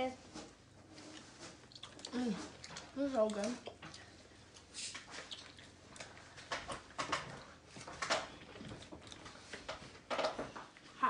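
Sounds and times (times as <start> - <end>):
wet chewing and lip smacks: 1.0 - 9.8.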